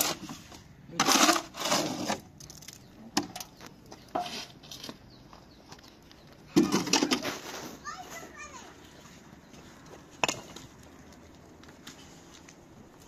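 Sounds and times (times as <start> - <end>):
shovel scraping wet mortar: 0.0 - 2.8, 4.1 - 5.0.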